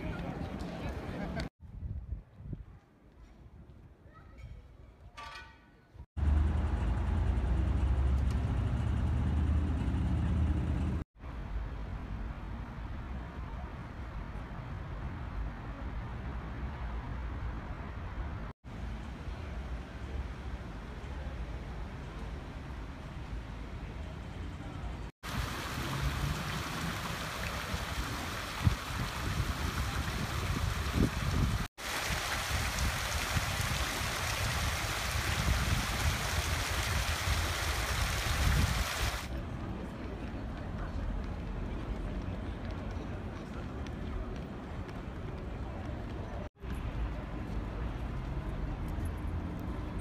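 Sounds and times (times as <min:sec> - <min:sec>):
road traffic rumble: 0:06.2 - 0:50.0
fountain water splashing: 0:25.2 - 0:39.3.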